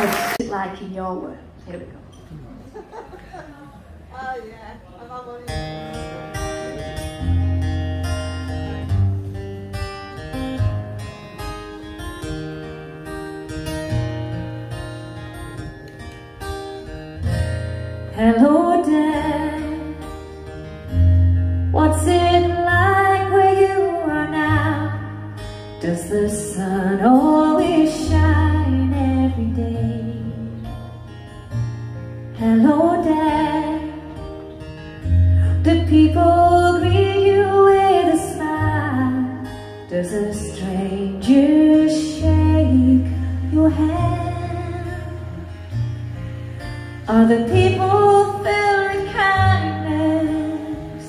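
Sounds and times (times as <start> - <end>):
strummed acoustic guitar: 5.4 - 51.0
woman singing: 18.2 - 20.2, 21.7 - 30.8, 32.3 - 34.4, 35.5 - 45.6, 47.0 - 51.0.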